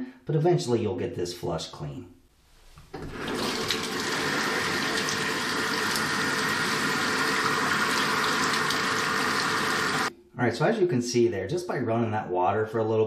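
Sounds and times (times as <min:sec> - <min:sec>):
water pouring into bathtub: 0:02.9 - 0:10.1.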